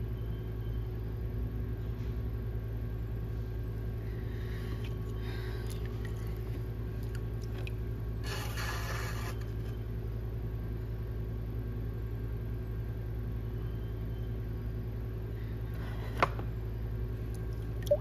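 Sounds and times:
potter's wheel motor humming: 0:03.5 - 0:10.9
tool scraping clay: 0:08.2 - 0:09.8.

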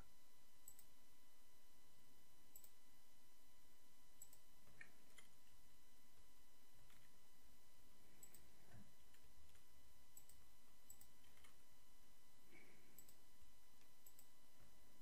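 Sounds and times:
computer mouse clicks: 0:00.6 - 0:00.9, 0:02.5 - 0:02.8, 0:04.2 - 0:05.6, 0:08.2 - 0:11.6, 0:12.9 - 0:13.2, 0:13.8 - 0:14.4.

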